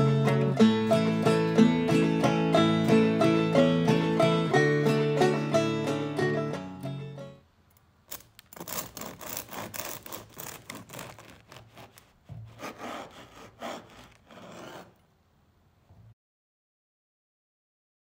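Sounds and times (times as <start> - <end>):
bread knife sawing crust: 8.6 - 15.0.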